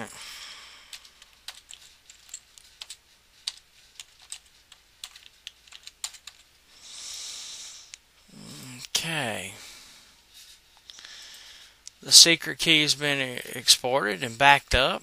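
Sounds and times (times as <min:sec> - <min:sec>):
typing on computer keyboard: 0:00.9 - 0:06.5.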